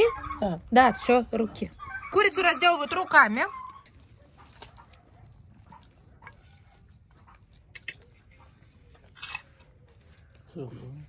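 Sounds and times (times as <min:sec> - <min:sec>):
faint chewing: 0:03.6 - 0:11.0.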